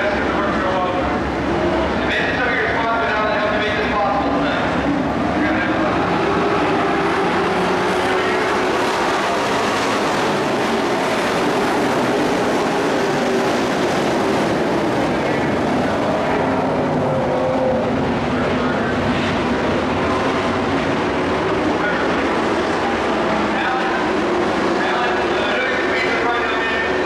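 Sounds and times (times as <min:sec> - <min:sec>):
race truck engines droning: 0:00.0 - 0:27.0.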